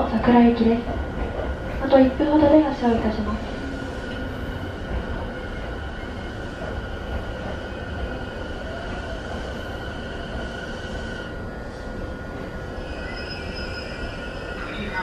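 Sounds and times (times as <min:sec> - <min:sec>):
train electrical equipment humming: 0:00.0 - 0:15.0
high-pitched whine: 0:12.6 - 0:15.0.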